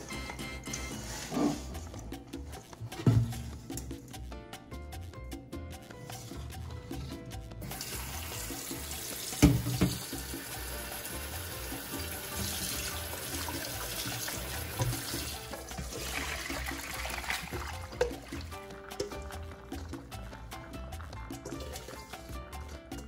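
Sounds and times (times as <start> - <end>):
background music: 0.0 - 23.0
water poured through colander: 6.0 - 23.0
tap running into metal bowl: 7.6 - 22.3.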